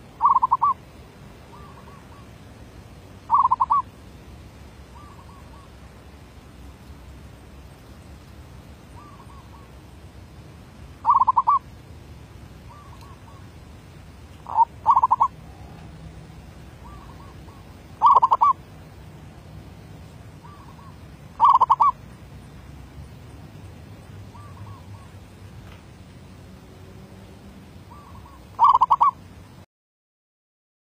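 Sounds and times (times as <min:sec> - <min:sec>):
dove cooing: 0:00.0 - 0:00.8, 0:01.5 - 0:02.3, 0:03.3 - 0:03.9, 0:04.9 - 0:05.8, 0:09.0 - 0:09.8, 0:11.0 - 0:11.6, 0:12.7 - 0:13.7, 0:14.4 - 0:16.0, 0:16.7 - 0:18.7, 0:20.4 - 0:22.0, 0:24.3 - 0:25.3, 0:27.9 - 0:29.2.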